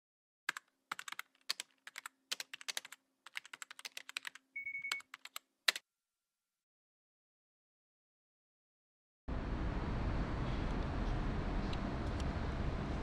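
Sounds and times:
keyboard typing clicks: 0.5 - 5.8.

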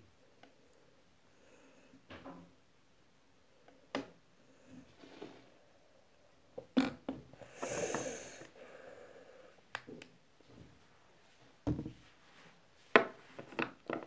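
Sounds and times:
breathy puff of air: 7.4 - 9.6.

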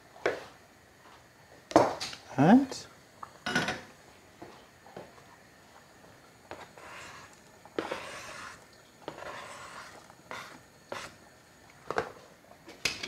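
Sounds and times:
knife scraping cutting board: 6.5 - 11.2.

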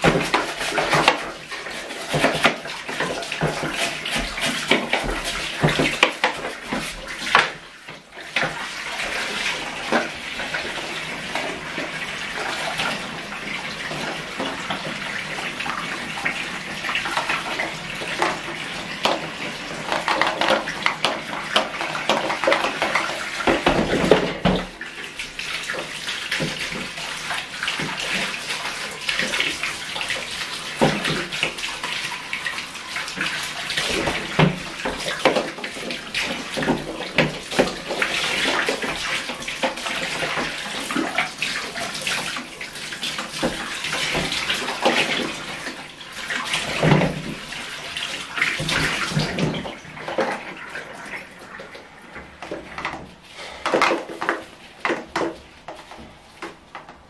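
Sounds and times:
bath tap running: 0.0 - 57.0
water splashing in bathtub: 0.0 - 57.0
plastic parts knocking: 18.1 - 24.7, 52.4 - 57.0.

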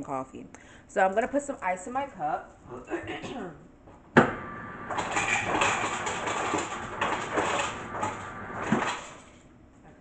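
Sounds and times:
ice cubes clattering into cup: 4.9 - 9.3.

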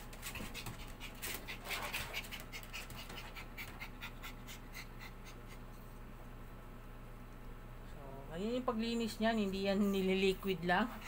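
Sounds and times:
puppy panting: 0.0 - 6.0.

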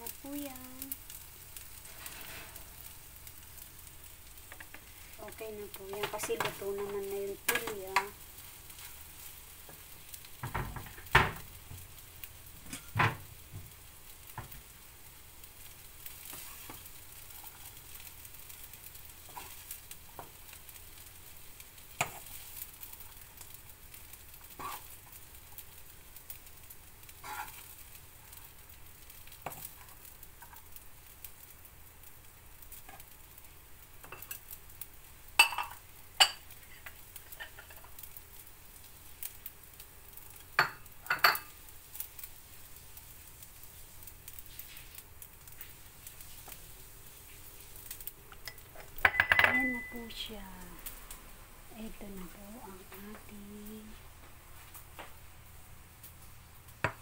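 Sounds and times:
faint sizzle from pan: 0.0 - 57.0
spatula scraping and tapping: 22.0 - 22.4, 27.2 - 27.7, 29.4 - 30.6.

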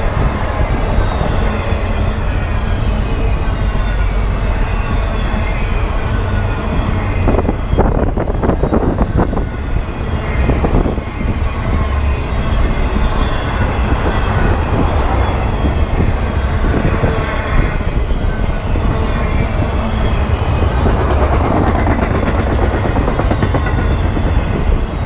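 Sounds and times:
train wheels rumbling on rails: 0.0 - 25.0
train clattering: 10.2 - 25.0.

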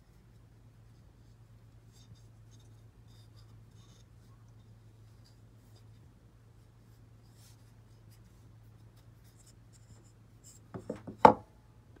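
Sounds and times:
wooden block rubbing and clicking: 10.5 - 11.4
wooden block knocking on bench: 10.7 - 11.5.

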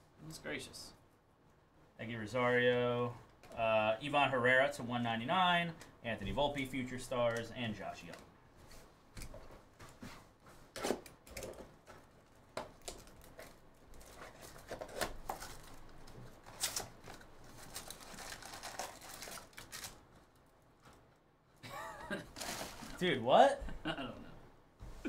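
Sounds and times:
foil packs rustling and crinkling: 11.6 - 20.5, 22.2 - 23.2.

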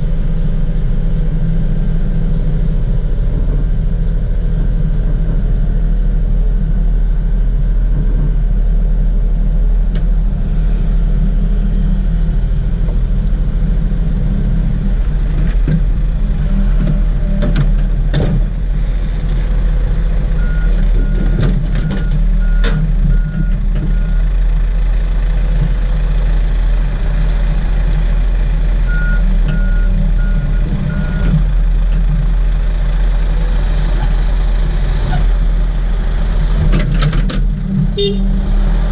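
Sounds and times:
excavator diesel engine running: 0.0 - 38.9.

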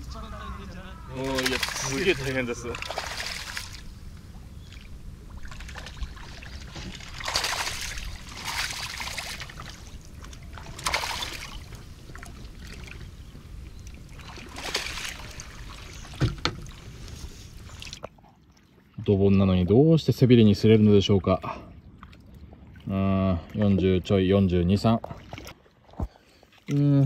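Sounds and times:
low wind rumble: 0.0 - 18.0
fish splashing at surface: 1.2 - 3.9, 4.8 - 13.0, 14.2 - 16.9.

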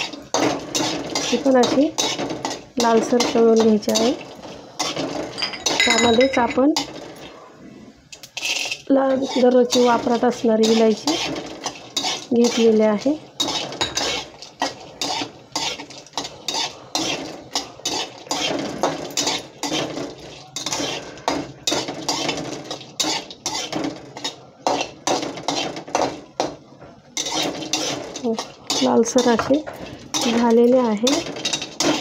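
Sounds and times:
metal spatula scraping metal pan: 0.0 - 7.2, 8.3 - 26.2, 27.2 - 32.0
spices frying in oil: 0.0 - 32.0.

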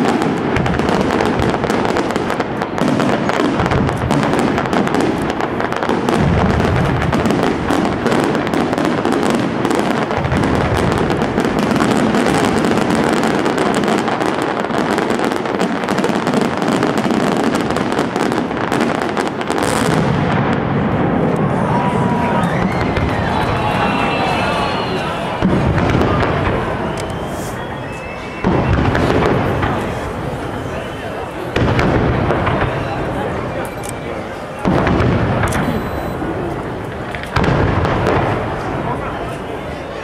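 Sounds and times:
fireworks bangs and crackling: 0.0 - 40.0.

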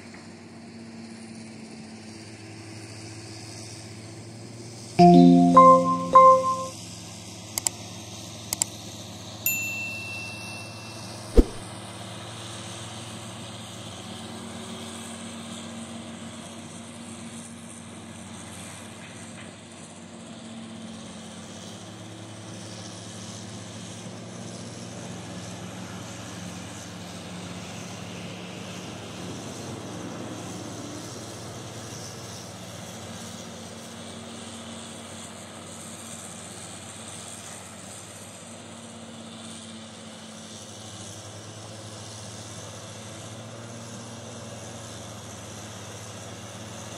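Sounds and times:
sharp knock: 11.4 - 11.6.

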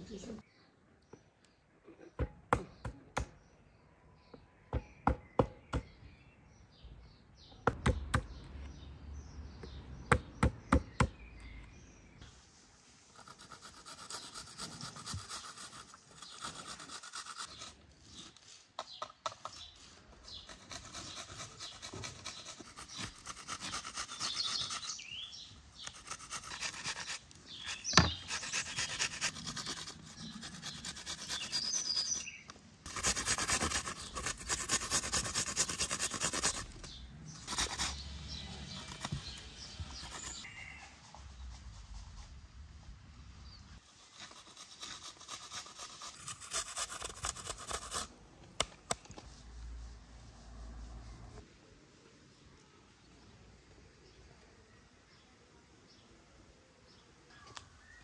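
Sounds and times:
fruit grated on metal grater: 20.3 - 25.0, 32.9 - 36.8.

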